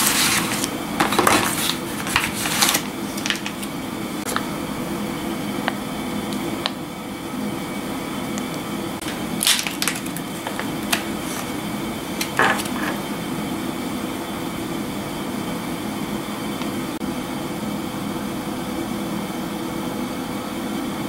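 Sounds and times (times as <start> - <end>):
plastic packaging crinkling: 0.0 - 4.5, 9.0 - 12.9
steady hum: 0.0 - 21.0.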